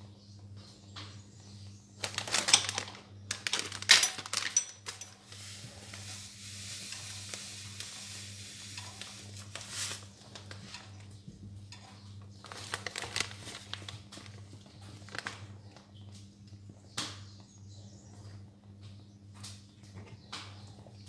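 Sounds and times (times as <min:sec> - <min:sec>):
packet rustling: 0:02.0 - 0:11.0, 0:12.3 - 0:15.8
steady hiss: 0:04.8 - 0:10.9.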